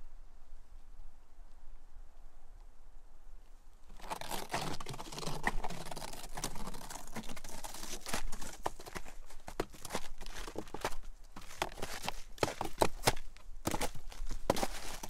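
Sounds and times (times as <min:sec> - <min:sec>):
snowshoe footsteps crunching snow: 0:03.9 - 0:15.0.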